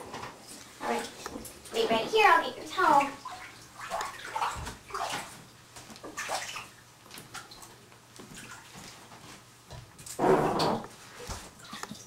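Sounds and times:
squeaks and bumps in a bathtub: 10.2 - 11.8.

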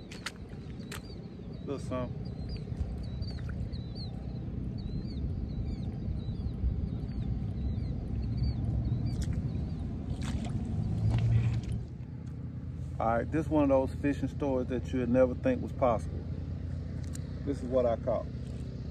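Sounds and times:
small bird chirping: 0.0 - 10.3
wind buffeting microphone: 0.0 - 12.0.

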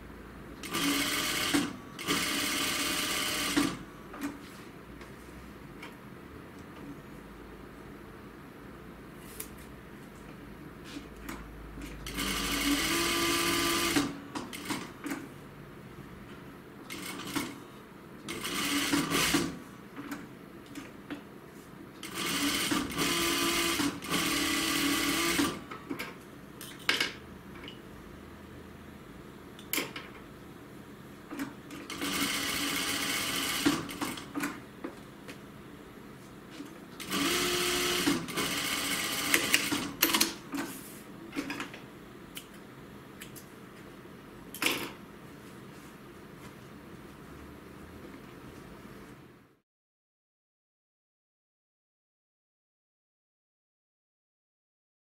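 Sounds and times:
sewing machine stitching: 0.6 - 3.8, 12.0 - 14.9, 18.3 - 19.6, 22.0 - 25.6, 31.7 - 34.3, 37.0 - 40.4.

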